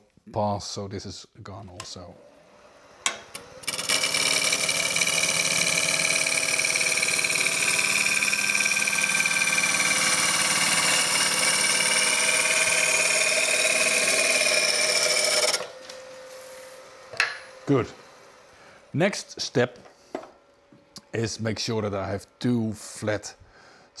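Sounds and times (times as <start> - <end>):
gouge cutting wood on lathe: 3.0 - 18.5.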